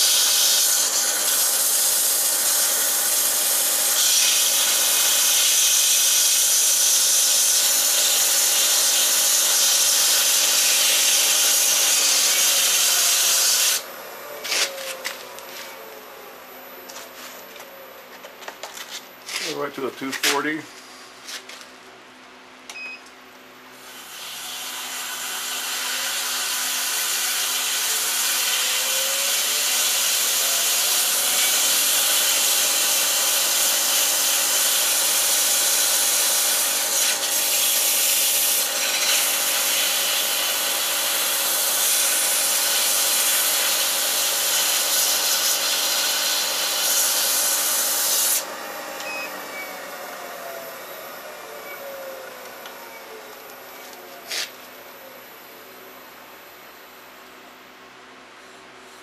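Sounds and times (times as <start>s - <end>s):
lathe motor hum: 0.0s - 19.5s, 24.0s - 57.0s
sandpaper sanding hiss: 54.2s - 54.6s.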